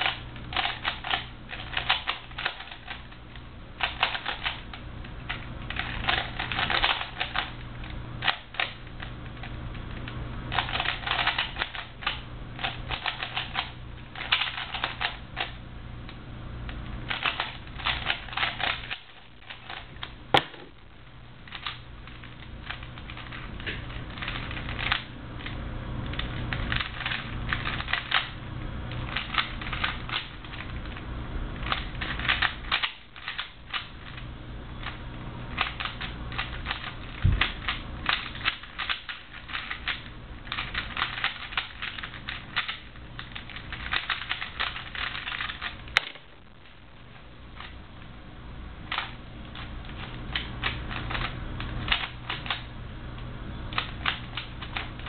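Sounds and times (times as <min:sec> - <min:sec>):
puzzle cube clicking: 0:10.5 - 0:13.6, 0:31.6 - 0:33.9, 0:35.6 - 0:46.2.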